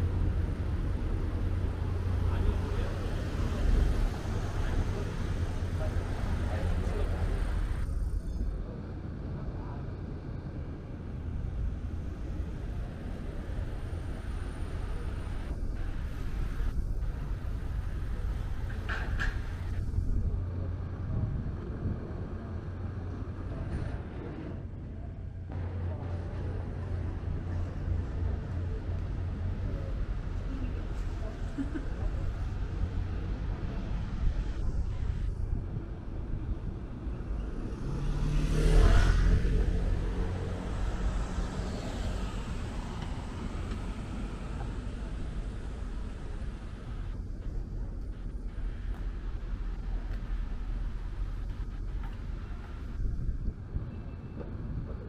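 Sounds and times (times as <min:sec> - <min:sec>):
low traffic rumble: 0:00.0 - 0:55.0
vehicle passing close by: 0:37.6 - 0:45.3.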